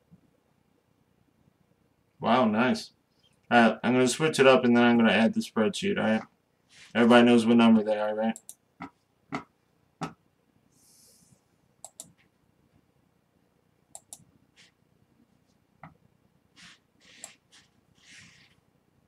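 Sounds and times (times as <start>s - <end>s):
mouse and keyboard clicks: 11.8s - 12.2s, 13.9s - 14.3s.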